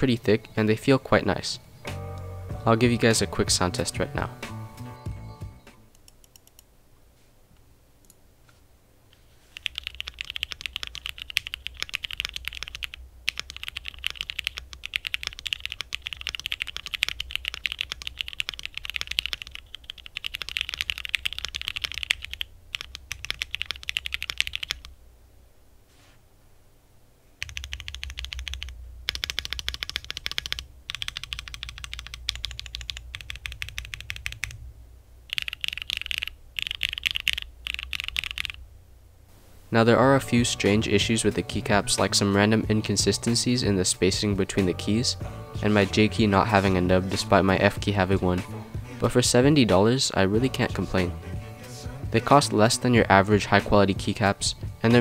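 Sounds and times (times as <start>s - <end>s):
typing on mechanical keyboard: 9.5s - 24.9s, 27.4s - 34.6s, 35.3s - 38.6s.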